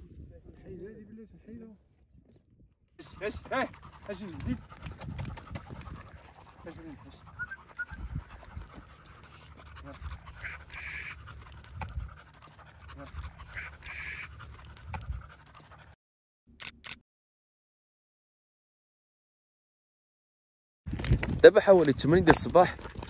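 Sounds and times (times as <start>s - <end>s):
dog panting: 3.0s - 16.0s.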